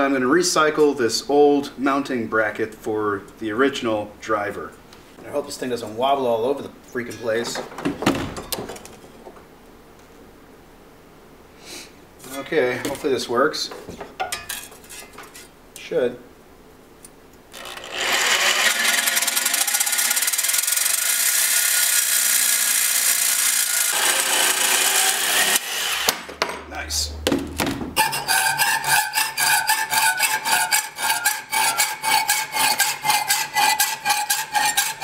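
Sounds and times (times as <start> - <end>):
electric jigsaw cutting steel: 17.5 - 26.3, 28.0 - 35.0
hacksaw cutting metal: 17.5 - 26.3, 28.0 - 35.0.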